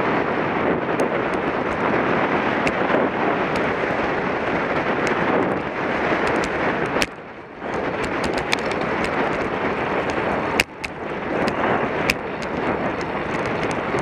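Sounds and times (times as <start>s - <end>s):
wind rushing over microphone: 0.0s - 14.0s
clicks and knocks from bike mount: 6.2s - 14.0s.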